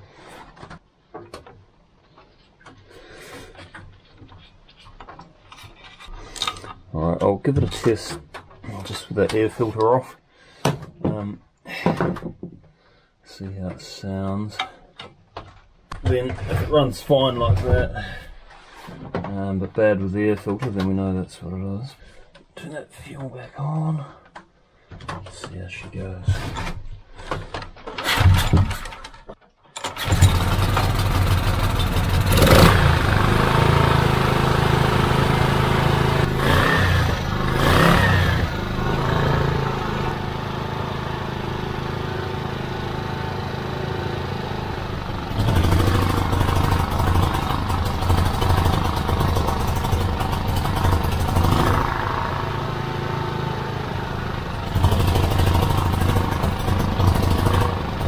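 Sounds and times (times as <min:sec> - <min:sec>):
generator engine pull-started: 0:27.9 - 0:29.2, 0:29.8 - 0:58.0
generator engine running: 0:29.9 - 0:58.0.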